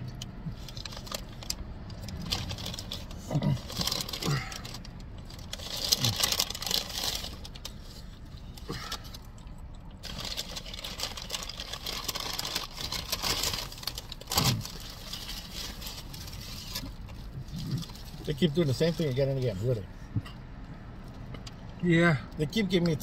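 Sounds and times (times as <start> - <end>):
paper bag rustling: 0.5 - 8.1, 10.0 - 18.6.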